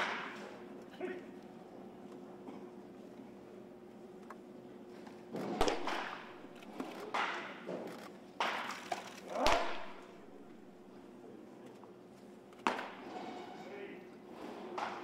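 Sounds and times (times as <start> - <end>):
baseball popping into mitt: 5.5 - 7.5.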